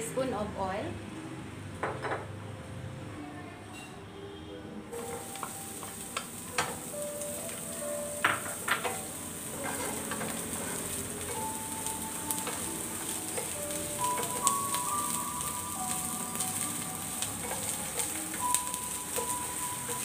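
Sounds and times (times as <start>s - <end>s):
onion sizzling in hot oil: 4.9s - 20.0s
wooden spatula scraping a pan: 8.3s - 11.5s.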